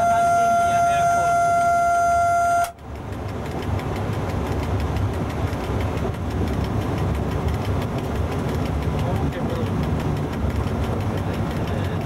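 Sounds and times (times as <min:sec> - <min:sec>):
locomotive horn: 0:00.0 - 0:02.8
locomotive running rumble: 0:00.0 - 0:12.0.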